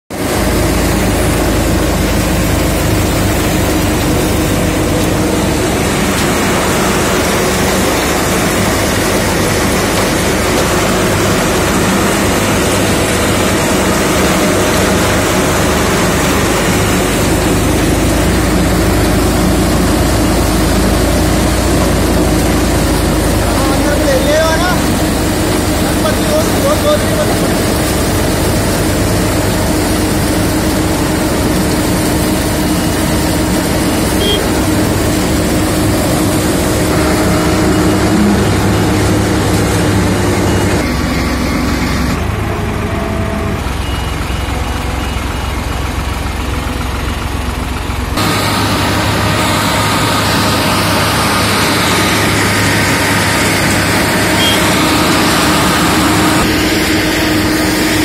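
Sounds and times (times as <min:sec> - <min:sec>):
tractor engine running: 0:00.1 - 0:58.0
harvester cutting cane: 0:48.2 - 0:58.0.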